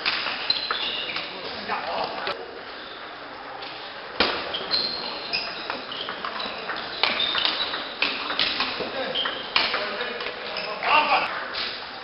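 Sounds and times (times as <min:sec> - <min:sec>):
shoes squeaking on floor: 0:00.4 - 0:01.5, 0:04.3 - 0:11.3.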